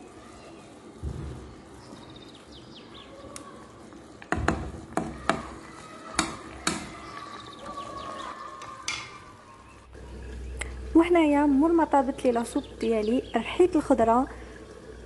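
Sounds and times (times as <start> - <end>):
low steady background noise: 0.0 - 15.0
sharp knocks: 4.3 - 5.6.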